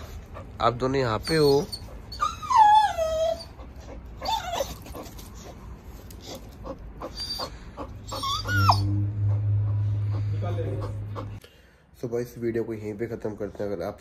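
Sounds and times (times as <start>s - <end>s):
dog whimpering: 0.0s - 5.6s, 6.2s - 11.4s
steady low hum: 5.5s - 12.0s.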